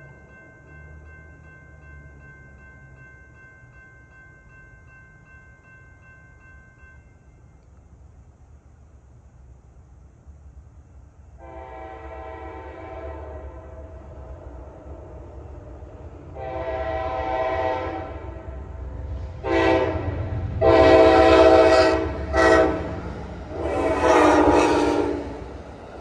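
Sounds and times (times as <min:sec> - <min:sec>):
train rumble: 0:00.0 - 0:26.0
locomotive air horn blasts: 0:11.4 - 0:14.0, 0:16.4 - 0:18.5, 0:19.4 - 0:25.4.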